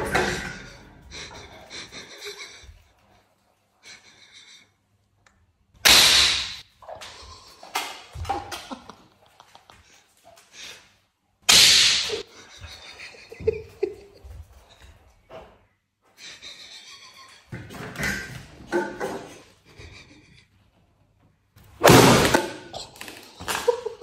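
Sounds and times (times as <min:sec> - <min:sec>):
loud sharp cracks: 0:05.8 - 0:06.6, 0:11.5 - 0:12.2, 0:21.8 - 0:22.6.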